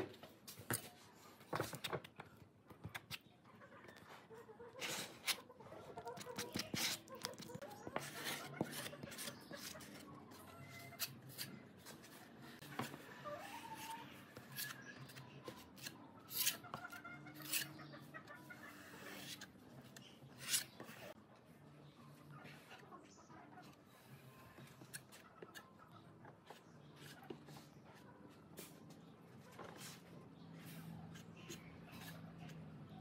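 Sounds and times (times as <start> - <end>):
blade scraping resin on wood: 14.4 - 17.9, 20.3 - 21.2.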